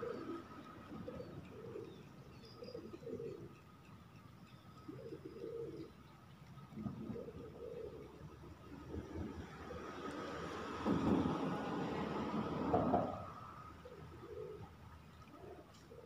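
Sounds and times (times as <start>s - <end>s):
bird cooing: 0.0s - 3.7s, 4.7s - 6.1s, 6.7s - 9.9s, 12.7s - 16.0s
faint bird chirps: 0.0s - 6.2s.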